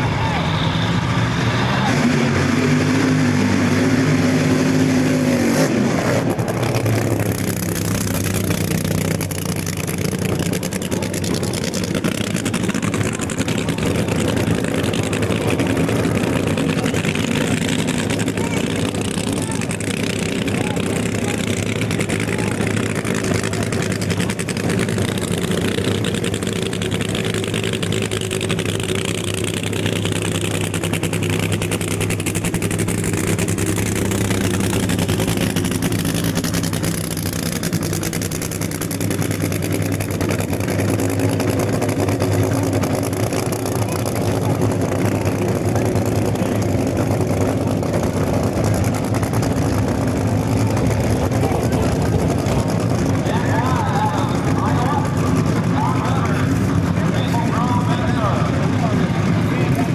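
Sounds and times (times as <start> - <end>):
race car engines idling: 0.0 - 59.9.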